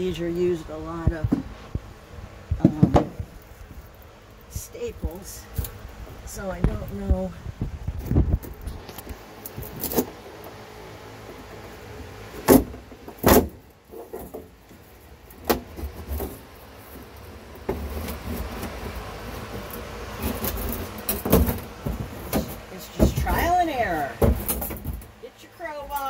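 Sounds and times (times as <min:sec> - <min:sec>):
steady low rumble: 0:00.0 - 0:13.9
wood panel cracking off staples: 0:12.5 - 0:13.6.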